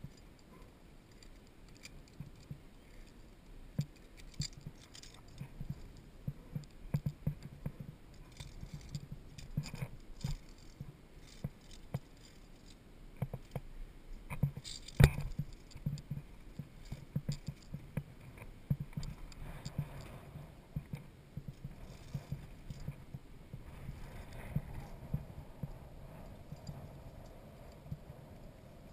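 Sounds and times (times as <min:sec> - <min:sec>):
carabiners clinking on steel cable: 0:00.0 - 0:13.6, 0:14.2 - 0:20.1, 0:20.8 - 0:23.2.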